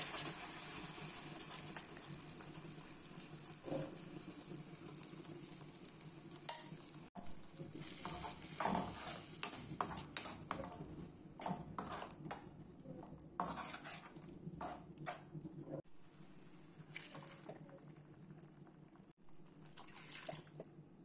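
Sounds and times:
frying sizzle: 0.0 - 20.6
spatula scraping metal pan: 7.3 - 12.5, 13.4 - 15.3.

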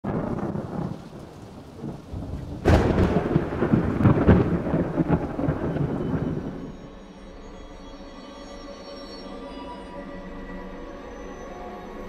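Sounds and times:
sharp thunderclap: 0.0 - 6.9
thunder rumbling: 0.0 - 7.1.

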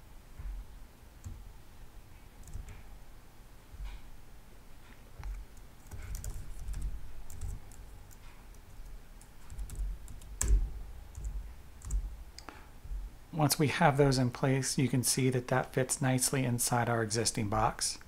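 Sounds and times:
typing on keyboard: 2.4 - 2.8, 5.8 - 12.1.

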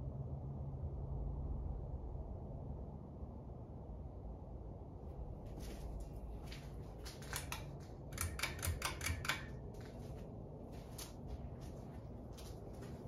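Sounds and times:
ceiling fan humming: 4.9 - 13.0
pull chain switch clicks: 7.2 - 9.7.

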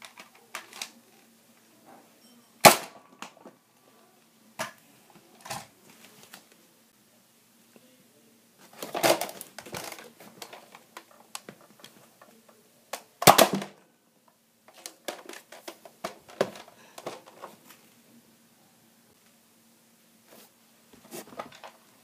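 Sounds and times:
plastic parts clicking and clattering: 0.0 - 1.3, 5.4 - 6.4, 8.6 - 13.8, 14.7 - 17.6, 21.1 - 21.8.

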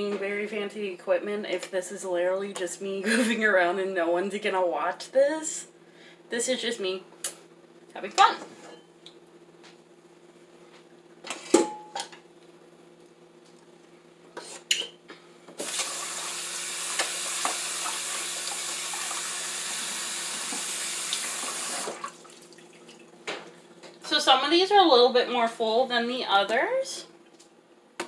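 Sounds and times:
tap water running: 15.6 - 23.5.

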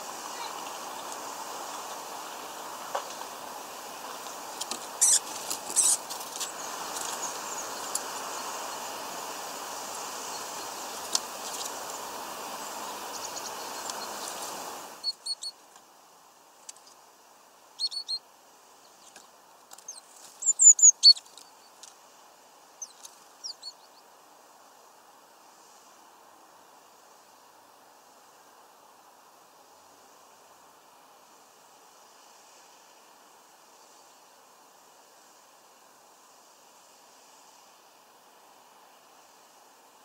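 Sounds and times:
steady background hiss: 0.0 - 40.0
songbirds chirping: 9.9 - 15.6, 17.7 - 21.9, 22.7 - 24.2.

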